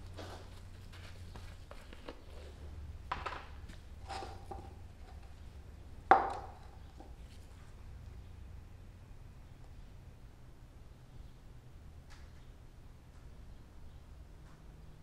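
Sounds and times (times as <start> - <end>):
low steady hum: 0.0 - 15.0
plastic jug and cups clattering: 3.1 - 5.3, 6.1 - 7.2.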